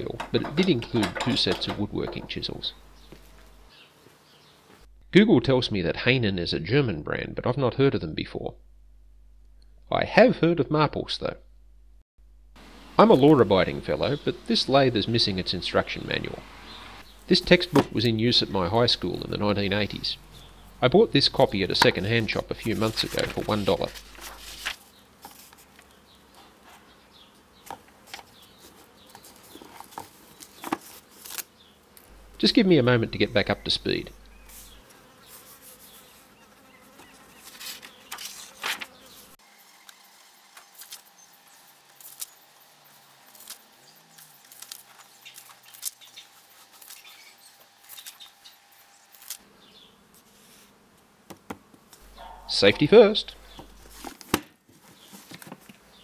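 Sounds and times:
book pages turning: 21.8 - 25.7, 29.1 - 31.5, 37.4 - 39.0, 44.2 - 46.0, 53.5 - 54.4
hand brushing paper: 21.9 - 25.8, 33.9 - 36.2, 37.4 - 39.4.

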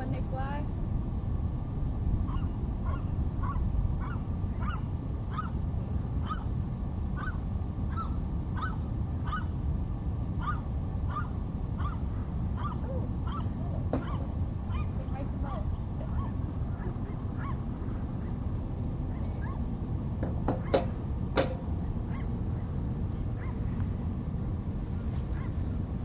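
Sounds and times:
steady low rumble: 0.0 - 26.0
birds calling: 2.3 - 5.6, 7.2 - 9.6, 10.4 - 15.0, 15.6 - 18.4.

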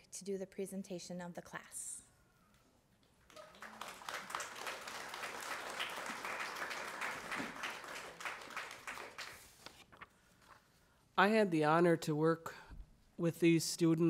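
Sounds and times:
audience applauding: 3.2 - 9.6.

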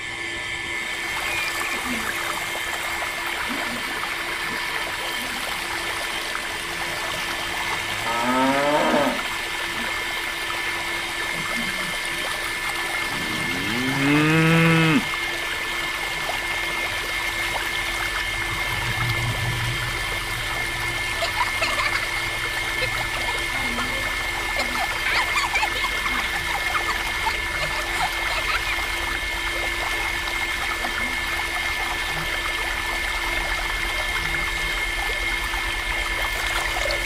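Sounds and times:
water pump running: 0.0 - 37.0
water splashing into pond: 1.1 - 37.0
cow mooing: 7.9 - 9.3, 13.1 - 15.1.

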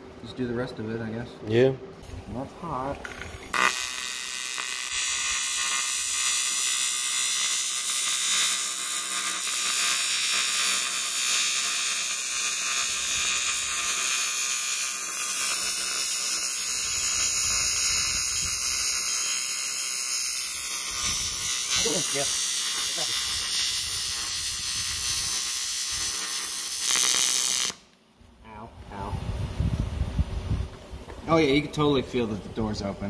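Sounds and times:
welding arc buzzing: 3.0 - 28.0.

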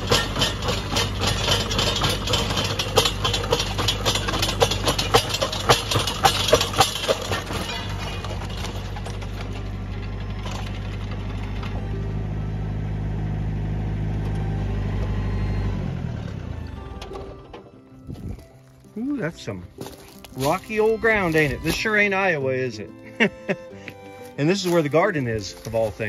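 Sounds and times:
auger bit grinding against stones: 0.0 - 11.8, 18.0 - 26.0
tractor engine running: 0.0 - 26.0.

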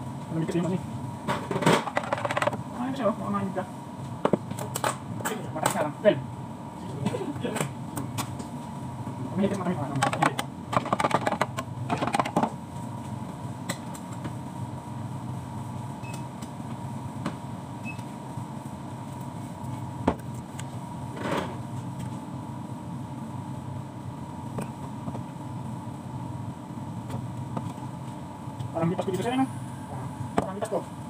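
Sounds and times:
steady appliance hum: 0.0 - 31.0.

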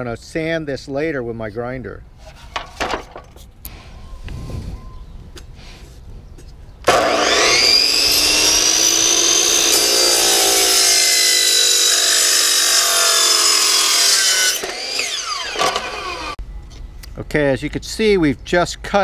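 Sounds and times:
miter saw cutting: 6.8 - 16.4.

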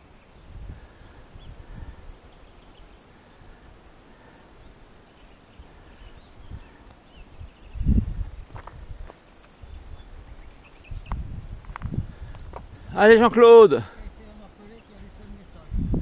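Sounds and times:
wind buffeting microphone: 0.0 - 3.7, 5.5 - 16.0
faint bird chirps: 0.0 - 8.5, 9.2 - 11.2.

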